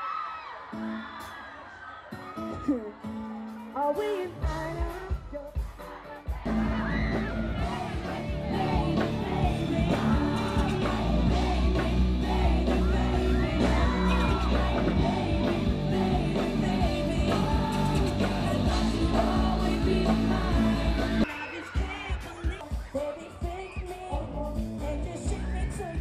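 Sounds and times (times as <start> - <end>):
band with heavy bass: 3.8 - 26.0
man singing lead vocal: 3.8 - 26.0
fans yelling: 6.0 - 24.2.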